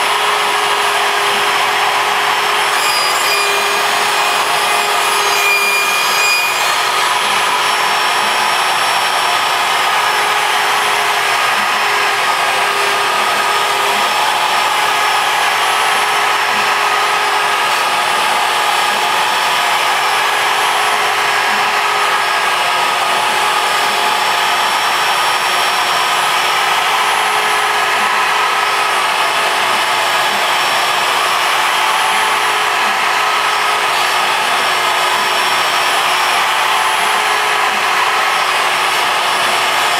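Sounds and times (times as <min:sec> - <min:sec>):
router cutting with steady whine: 0:00.0 - 0:39.9
shop vacuum rushing: 0:00.0 - 0:39.9.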